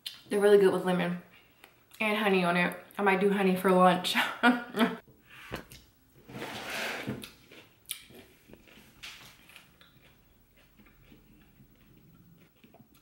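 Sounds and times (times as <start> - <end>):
crunchy chewing of cucumber: 7.2 - 13.0.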